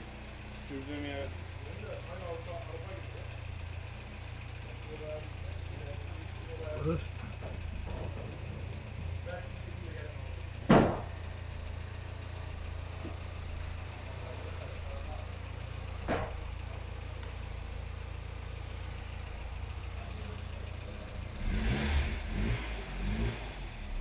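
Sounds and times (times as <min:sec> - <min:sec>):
low engine hum: 0:00.0 - 0:24.0
sharp knock: 0:10.7 - 0:11.1, 0:16.1 - 0:16.4.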